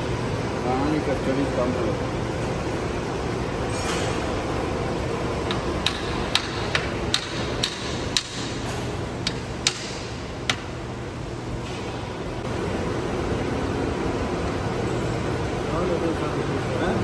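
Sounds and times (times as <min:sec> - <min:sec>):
low workshop hum: 0:00.0 - 0:17.0
hammer tapping metal: 0:05.4 - 0:10.7.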